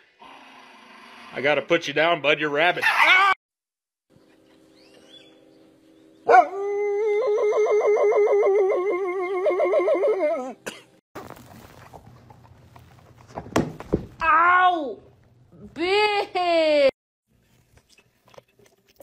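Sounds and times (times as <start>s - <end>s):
dog howling: 6.3s - 10.6s.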